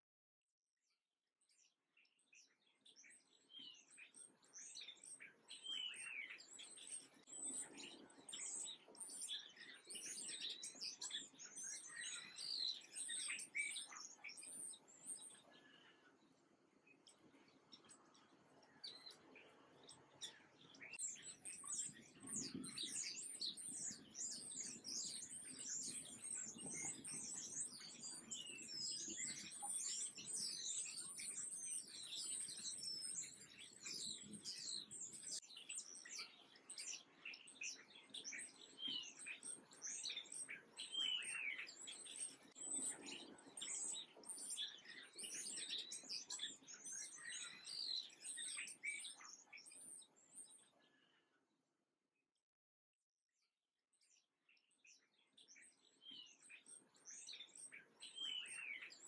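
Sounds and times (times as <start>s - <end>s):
songbirds chirping: 1.4s - 51.4s, 54.0s - 59.0s.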